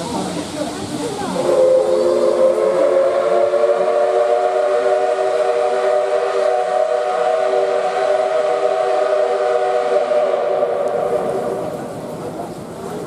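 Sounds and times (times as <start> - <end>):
steam whistle blast: 1.3 - 11.7.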